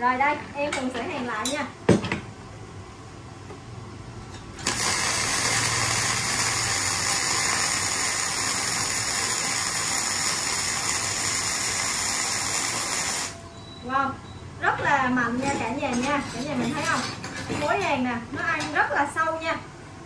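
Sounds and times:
welding arc noise: 4.5s - 13.5s.

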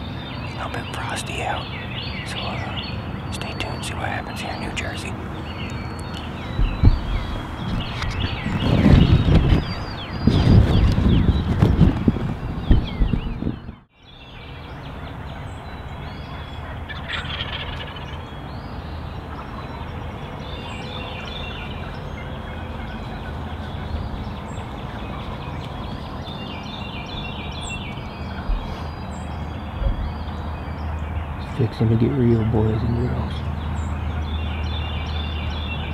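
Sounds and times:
turkey rattling calls: 14.9s - 18.4s
turkeys gobbling: 15.0s - 18.4s.

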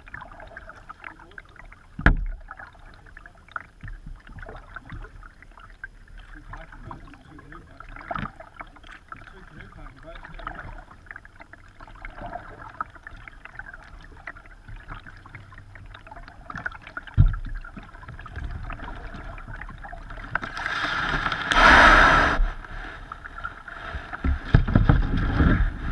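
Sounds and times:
kayak paddle splashes: 0.0s - 25.9s
water lapping at hull: 0.0s - 25.9s
hull scraping onto sand: 20.6s - 23.0s.

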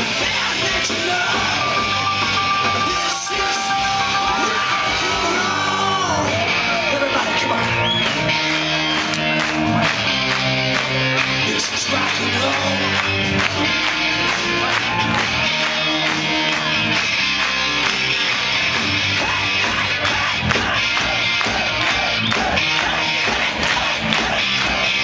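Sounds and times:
person singing: 0.0s - 8.0s, 11.4s - 14.8s, 19.0s - 25.0s
live rock band playing: 0.0s - 25.0s.

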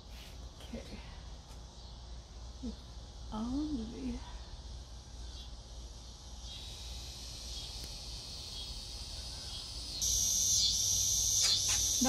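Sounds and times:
high-pitched insect chorus: 1.7s - 12.0s.

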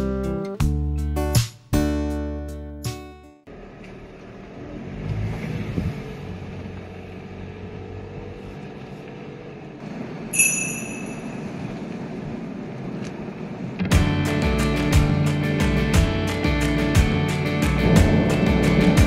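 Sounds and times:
car road and engine noise: 3.4s - 19.0s
short high-pitched tone: 10.4s - 11.5s.

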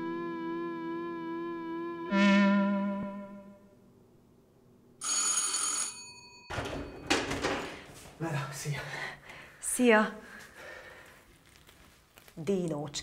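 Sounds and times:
wavering electronic tone: 0.0s - 3.7s
doorbell ringing: 5.0s - 7.7s.

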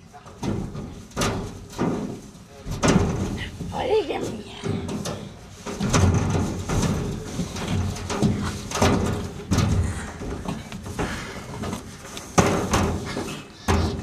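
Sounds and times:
thuds on metal slide: 0.3s - 14.0s.

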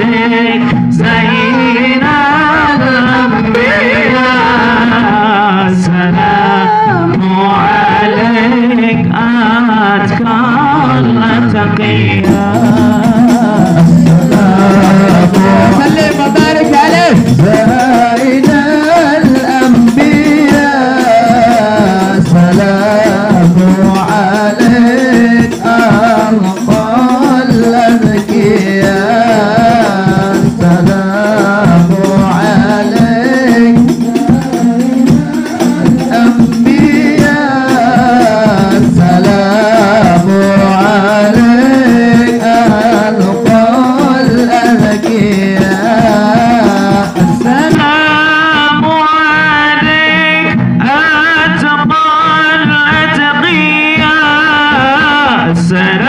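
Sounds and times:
devotional singing: 0.0s - 56.0s
frame drums with jingles: 11.2s - 50.6s.

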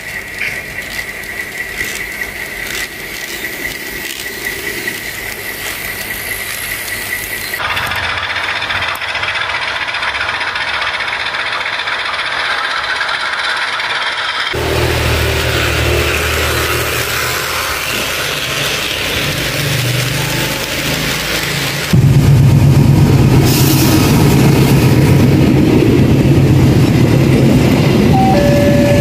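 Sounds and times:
model train motor whine: 0.0s - 19.6s
model locomotive running noise: 0.0s - 22.2s, 24.0s - 29.0s
wheel clicks on track: 0.1s - 14.7s.

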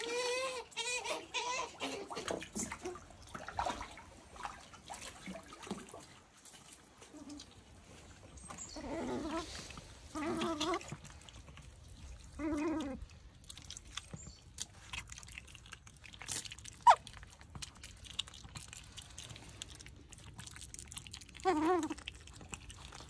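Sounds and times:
light taps and drips: 2.1s - 8.7s.

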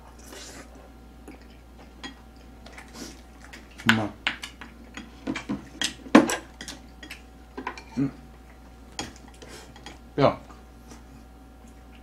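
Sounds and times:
utensils clinking on ceramic bowl: 4.3s - 8.0s, 9.0s - 10.0s.

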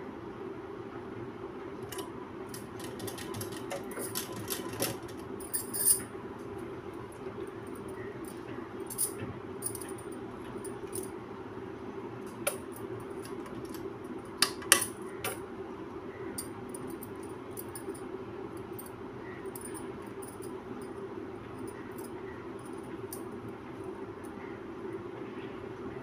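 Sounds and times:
steady low hum: 0.0s - 26.0s
bangles clinking: 3.1s - 6.0s, 7.8s - 11.1s, 16.4s - 18.1s, 18.7s - 20.9s.

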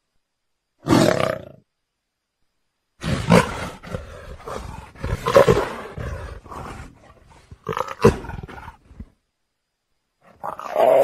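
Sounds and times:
leopard roaring and growling: 3.0s - 9.1s, 10.3s - 11.0s.

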